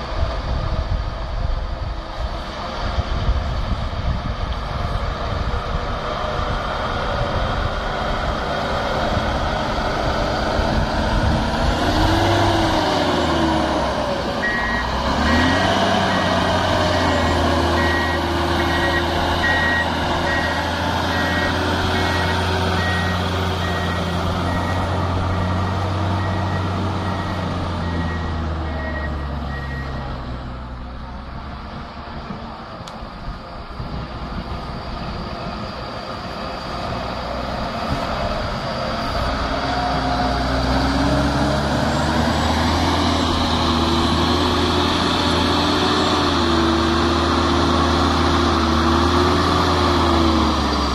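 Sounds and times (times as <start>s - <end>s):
diesel engine revving: 0.0s - 50.9s
reversing alarm beeping: 14.4s - 30.2s.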